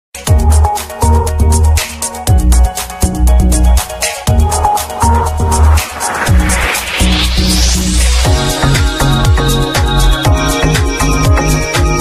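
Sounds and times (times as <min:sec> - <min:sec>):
bright hi-hats: 0:01.8 - 0:10.2
sustained bass: 0:02.4 - 0:12.0
synth chords: 0:03.2 - 0:09.7.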